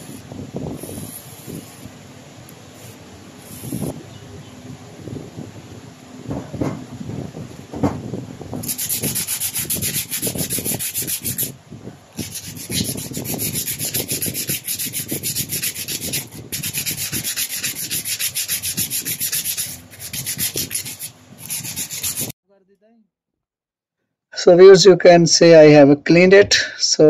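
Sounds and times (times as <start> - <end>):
sandpaper rubbing metal: 0.0 - 1.9, 2.7 - 4.0, 8.6 - 11.6, 12.2 - 22.3.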